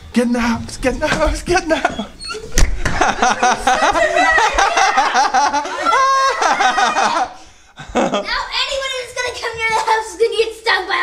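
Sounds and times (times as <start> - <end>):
woman and child laughing: 1.7 - 8.3.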